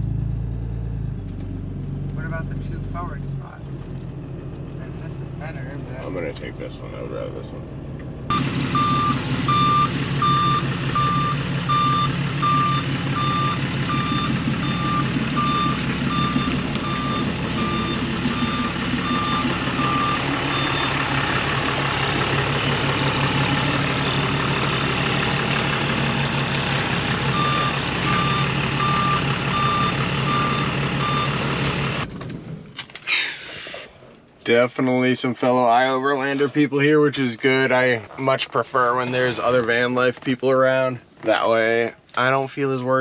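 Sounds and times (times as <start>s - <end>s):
diesel engine running: 0.0s - 34.1s
reverse warning beeps: 8.3s - 21.2s, 23.5s - 24.7s, 27.3s - 31.5s.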